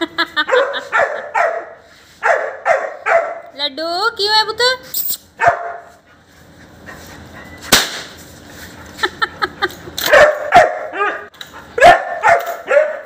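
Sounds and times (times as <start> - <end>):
dog barking: 0.5 - 3.5, 5.4 - 5.9, 10.1 - 13.0
sharp crack: 7.7 - 8.2.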